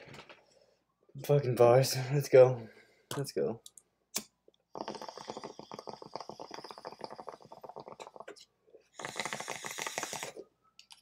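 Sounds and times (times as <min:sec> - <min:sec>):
water bubbling in a bong: 0:04.7 - 0:10.4.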